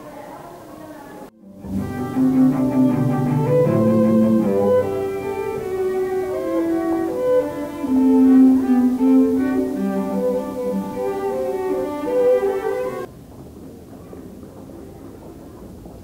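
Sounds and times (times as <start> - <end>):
low background noise: 0.0 - 16.0
cello bowed low notes: 1.4 - 13.1
violin melody: 1.4 - 13.1.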